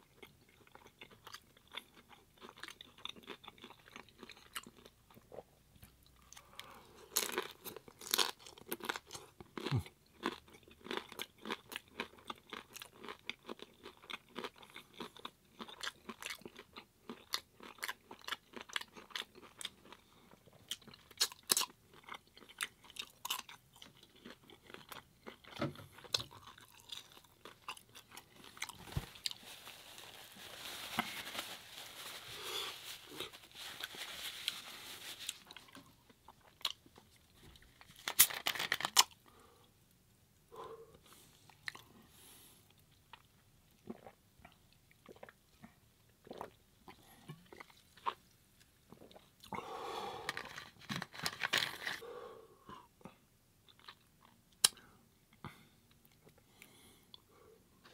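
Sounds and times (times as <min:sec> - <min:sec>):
person crunching taco shells: 0:00.2 - 0:04.9, 0:06.1 - 0:20.0, 0:20.6 - 0:36.8, 0:37.6 - 0:39.2, 0:49.9 - 0:52.0.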